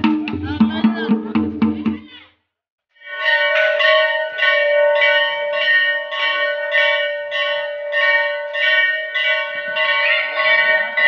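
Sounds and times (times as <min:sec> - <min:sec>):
temple bell ringing: 0:03.0 - 0:11.0.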